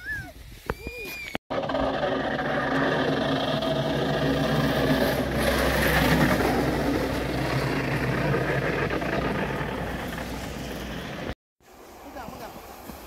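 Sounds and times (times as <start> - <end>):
vehicle engine and road noise: 1.5 - 11.4.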